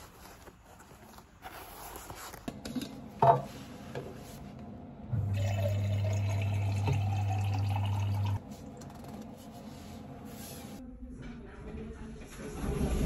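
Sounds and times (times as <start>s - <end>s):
water filling a bottle: 5.2s - 8.4s.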